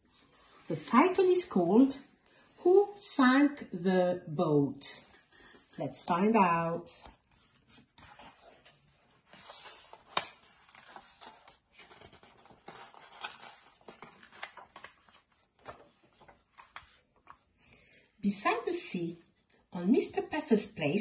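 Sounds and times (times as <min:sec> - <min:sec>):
book pages turning: 0:06.8 - 0:17.6.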